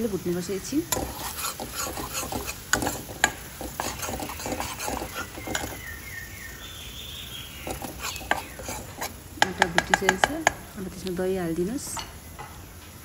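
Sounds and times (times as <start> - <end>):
light sizzle of frying: 0.0 - 13.0
steel spoon scraping a pan: 0.7 - 5.9, 7.6 - 10.6.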